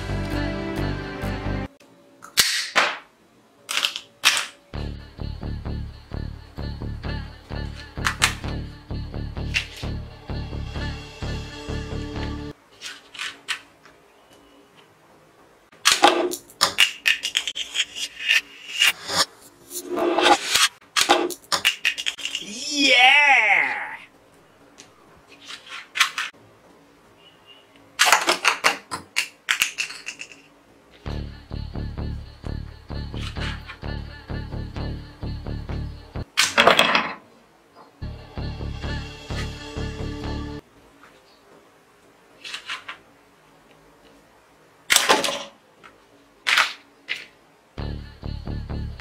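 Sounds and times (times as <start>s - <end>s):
background music with a beat: 0.0s - 1.7s, 4.8s - 12.5s, 31.1s - 36.3s, 38.0s - 40.6s, 47.8s - 49.0s
toy dart rifle snap: 2.2s - 3.0s.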